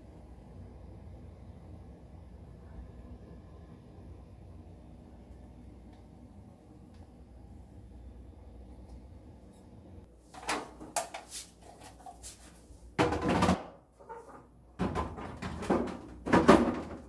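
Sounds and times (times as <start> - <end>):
plastic knocks and clatters: 13.0 - 13.7, 14.8 - 17.0.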